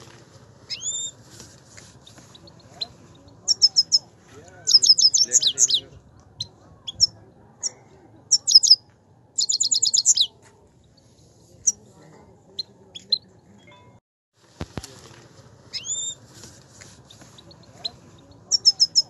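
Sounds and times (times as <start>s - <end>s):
bird sharp chirps: 0.7s - 1.2s, 2.0s - 4.1s, 4.7s - 5.8s, 6.4s - 10.4s, 15.7s - 16.2s, 17.1s - 19.0s
goldfinch twittering: 4.7s - 5.8s.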